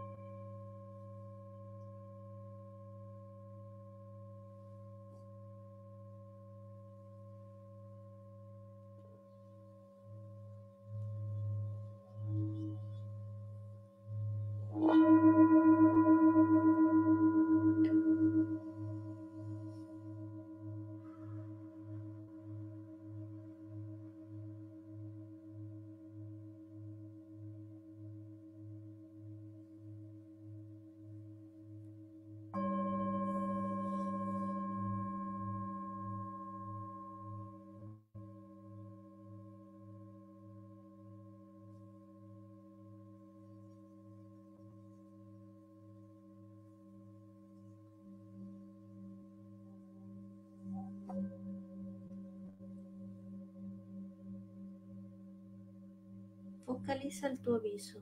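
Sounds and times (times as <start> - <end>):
large singing bowl humming: 0.0 - 57.5
singing bowl struck ringing: 11.2 - 22.6, 32.6 - 42.6, 47.9 - 56.8
bowl struck with a mallet: 14.2 - 21.5.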